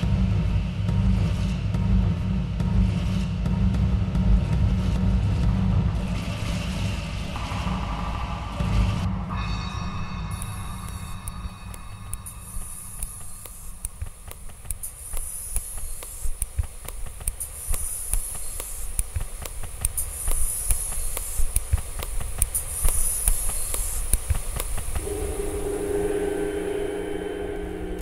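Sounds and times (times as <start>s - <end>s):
low rumble: 6.0s - 14.1s, 25.0s - 28.0s
swishing hiss: 7.8s - 28.0s.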